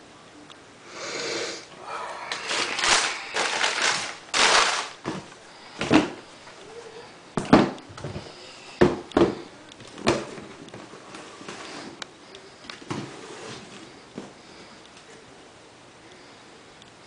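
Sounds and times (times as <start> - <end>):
tissue paper rustling: 2.5 - 5.0.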